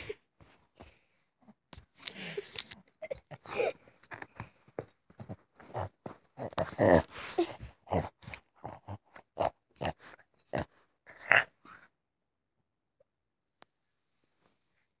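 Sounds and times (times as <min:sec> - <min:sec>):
small dog play-biting: 0:04.1 - 0:09.9.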